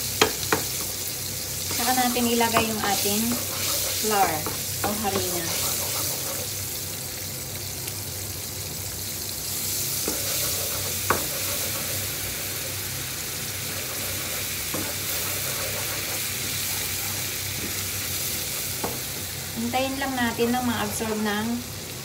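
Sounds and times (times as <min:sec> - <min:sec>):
butter sizzling in a frying pan: 0:00.0 - 0:22.0
spatula knocking against pan: 0:00.2 - 0:00.8, 0:02.5 - 0:03.7, 0:10.0 - 0:11.9.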